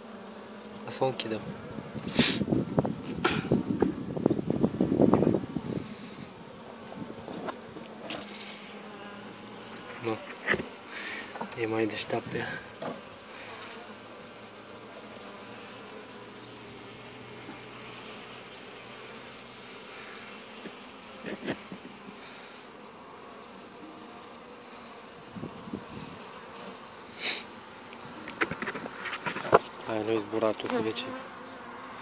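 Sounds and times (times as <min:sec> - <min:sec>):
honeybees buzzing: 0:00.0 - 0:32.0.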